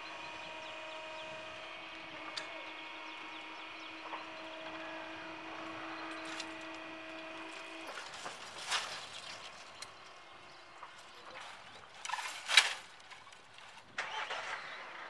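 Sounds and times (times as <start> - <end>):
barrier motor humming: 0.0 - 15.0.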